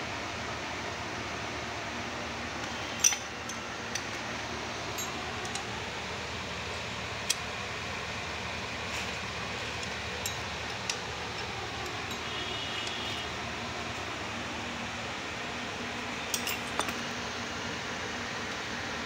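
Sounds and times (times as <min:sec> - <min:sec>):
steady background hiss: 0:00.0 - 0:19.0
spanner clinking on metal: 0:02.9 - 0:04.2, 0:09.8 - 0:13.1, 0:16.2 - 0:17.1.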